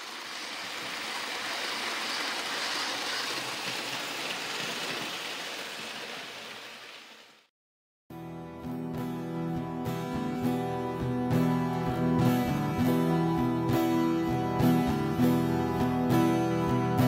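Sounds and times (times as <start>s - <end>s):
model train rolling on track: 0.0s - 7.4s.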